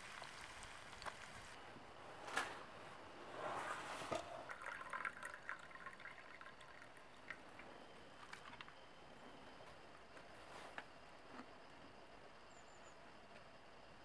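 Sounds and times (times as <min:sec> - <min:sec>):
pans sizzling over fire: 0:00.0 - 0:01.6
liquid poured into steel mug: 0:04.1 - 0:07.6.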